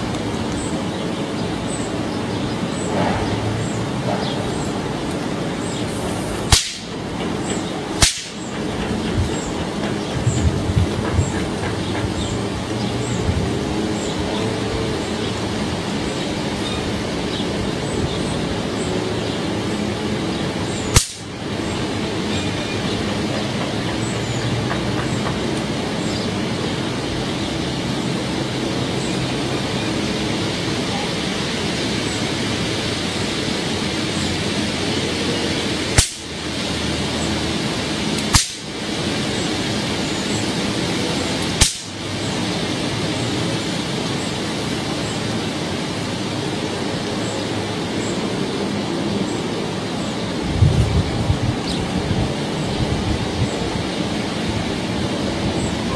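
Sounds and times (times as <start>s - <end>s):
steady rushing noise: 0.0s - 55.9s
electric trap snapping: 6.5s - 7.0s, 8.0s - 8.6s, 20.9s - 21.3s, 36.0s - 36.3s, 38.2s - 38.8s, 41.4s - 42.0s.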